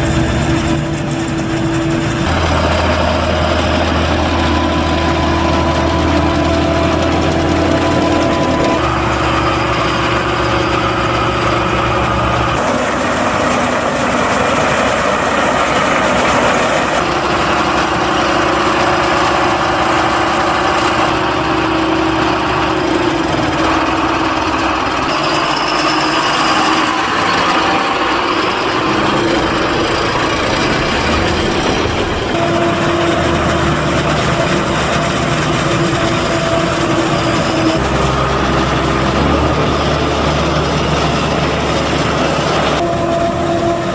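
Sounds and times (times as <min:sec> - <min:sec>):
diesel tractor engines running: 0:00.0 - 0:43.9
forage harvester working: 0:00.0 - 0:43.9.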